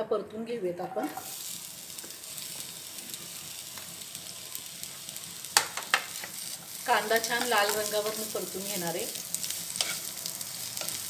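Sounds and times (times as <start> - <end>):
onion sizzling in oil: 1.0 - 11.0.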